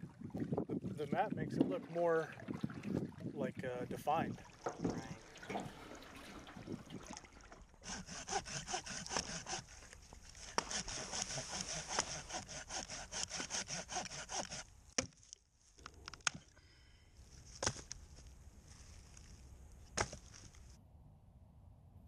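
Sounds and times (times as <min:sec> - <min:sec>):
hand saw cutting wood: 0:07.8 - 0:14.8.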